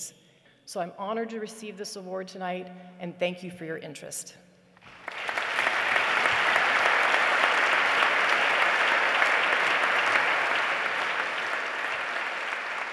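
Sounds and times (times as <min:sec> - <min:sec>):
audience applauding: 0:04.8 - 0:12.9.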